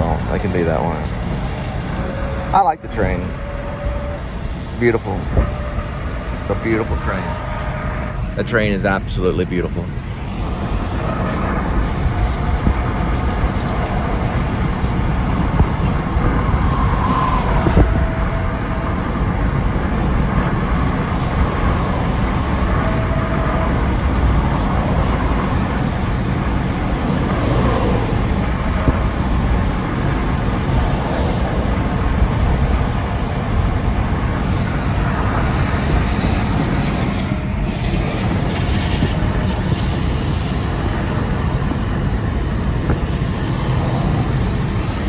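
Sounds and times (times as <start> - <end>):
car road noise: 0.0 - 45.0
freight train rumbling by: 0.0 - 45.0.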